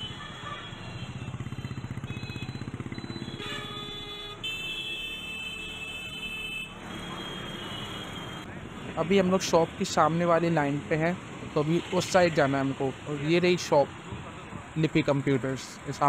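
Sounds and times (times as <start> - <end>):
vehicle horns honking: 0.0 - 8.4
motorcycle engine running: 0.2 - 4.0.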